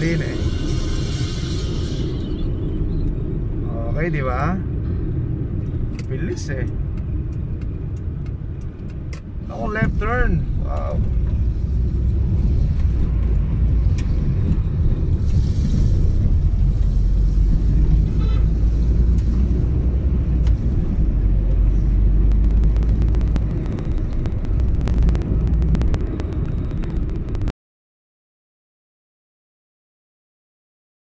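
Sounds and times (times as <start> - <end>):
car interior road rumble: 2.7 - 27.5
small clicks: 22.3 - 27.5.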